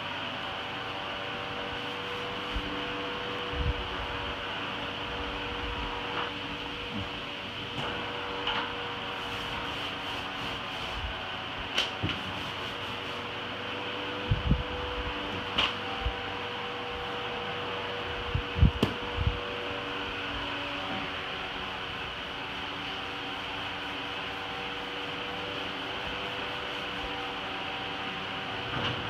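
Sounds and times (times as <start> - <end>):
whirring hum: 0.0 - 29.0.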